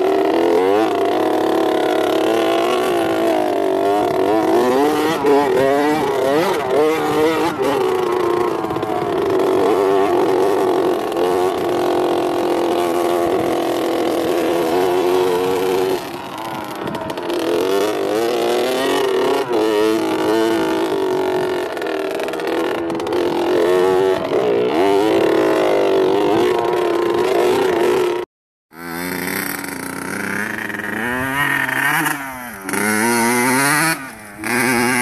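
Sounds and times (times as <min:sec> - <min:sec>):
dirt bike engine revving: 0:00.0 - 0:35.0.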